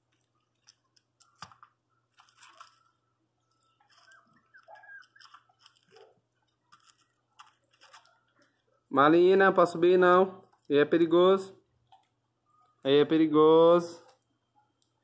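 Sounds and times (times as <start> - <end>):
puppy gnawing on a bone: 3.8 - 8.6.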